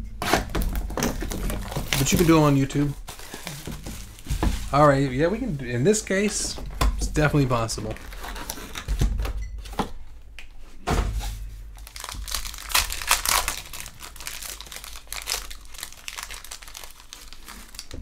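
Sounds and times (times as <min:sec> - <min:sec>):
foil wrappers crinkling: 0:00.4 - 0:09.0, 0:11.8 - 0:18.0
dull thumps: 0:03.0 - 0:07.8.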